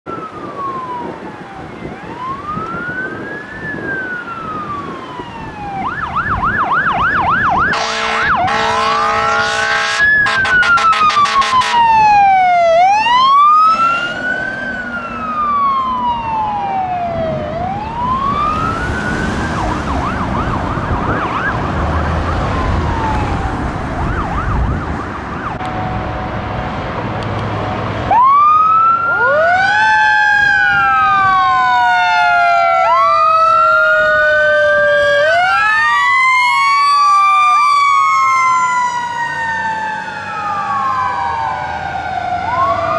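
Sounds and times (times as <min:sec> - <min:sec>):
fire truck siren wailing: 0:00.0 - 0:42.9
air horn blasts: 0:07.7 - 0:12.0.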